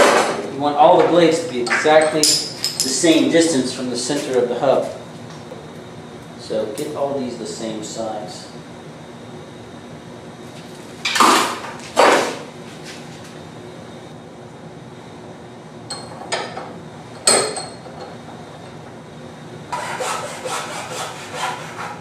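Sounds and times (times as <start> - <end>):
scraping strokes: 19.8 - 22.0.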